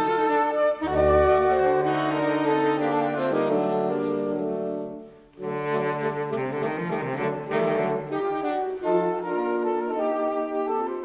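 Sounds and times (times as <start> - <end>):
saxophone quartet playing chords: 0.0 - 11.0.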